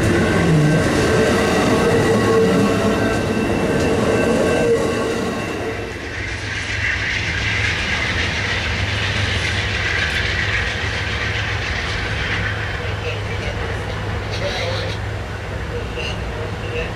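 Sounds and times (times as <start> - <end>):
ringing wheel squeal: 0.0 - 12.9
train wheels clickety-clack: 0.0 - 15.1
train rumble and hiss: 0.0 - 16.9.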